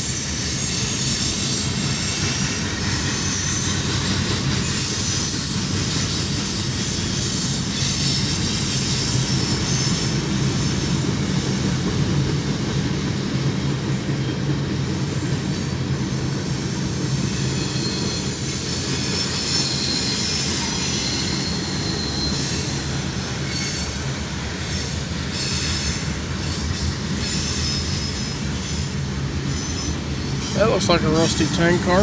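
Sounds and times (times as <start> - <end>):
train wheels rumbling on rail: 0.0 - 32.0
high-pitched wheel squeals: 17.0 - 32.0.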